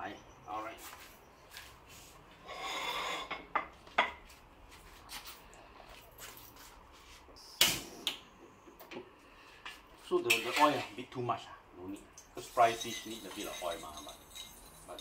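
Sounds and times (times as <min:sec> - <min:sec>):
dishes and utensils clinking: 0:10.3 - 0:11.0, 0:12.4 - 0:15.0.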